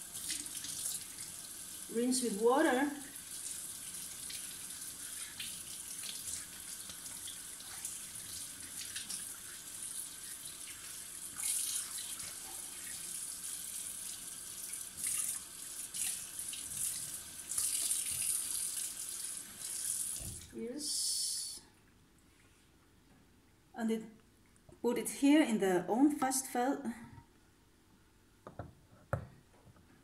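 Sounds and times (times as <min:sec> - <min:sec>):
tap water splashing into sink: 0:20.0 - 0:20.5.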